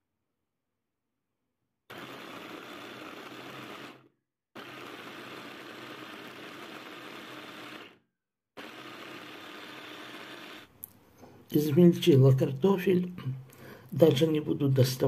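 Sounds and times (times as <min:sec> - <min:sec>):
blender motor chopping: 0:01.9 - 0:08.0, 0:08.6 - 0:10.8.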